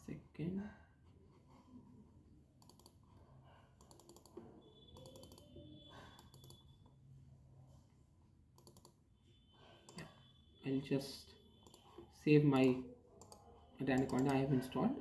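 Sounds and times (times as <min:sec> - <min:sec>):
computer mouse clicks: 0:02.6 - 0:03.1, 0:03.8 - 0:04.4, 0:05.0 - 0:05.5, 0:06.2 - 0:06.7, 0:08.6 - 0:09.0, 0:09.9 - 0:10.1, 0:11.6 - 0:12.0, 0:12.6 - 0:14.4.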